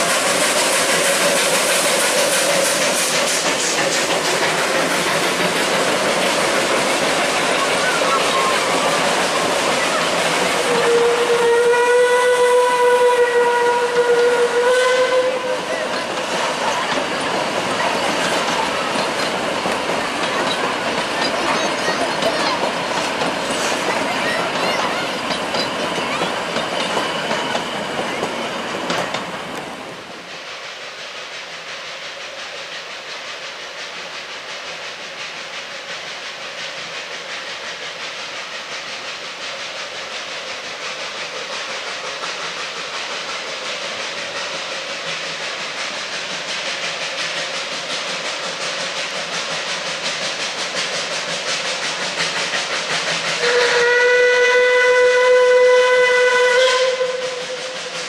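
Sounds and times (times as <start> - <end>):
train wheels clicking over rails: 0.0 - 11.6, 13.8 - 58.0
steam locomotive hissing steam: 0.0 - 58.0.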